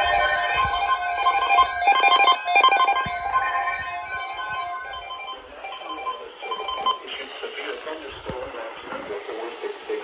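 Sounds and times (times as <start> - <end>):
weather radio alert beeps: 0.0 - 7.2.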